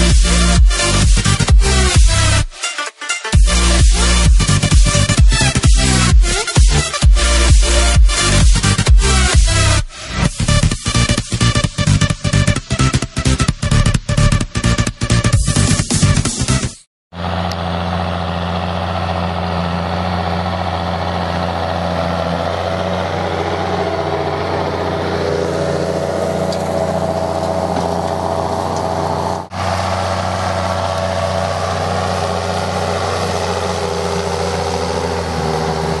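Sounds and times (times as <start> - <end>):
tractor engine running under load: 3.4 - 9.8, 17.1 - 36.0.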